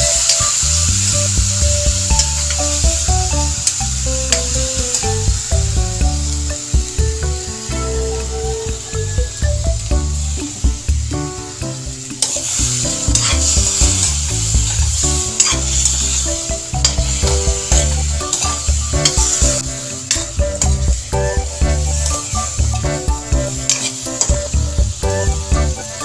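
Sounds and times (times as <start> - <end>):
background music with bass line: 0.0 - 26.0
food sizzling in a wok: 0.0 - 26.0
metal spatula scraping pan: 13.1 - 14.1, 15.4 - 16.2.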